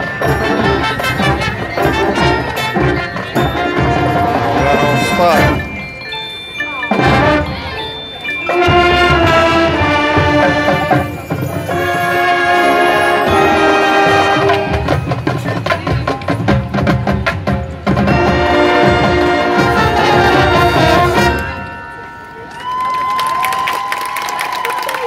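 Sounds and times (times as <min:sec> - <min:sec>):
drumline: 0:00.0 - 0:21.7
saxophones flutes and brass chords: 0:07.0 - 0:15.0, 0:18.1 - 0:21.7.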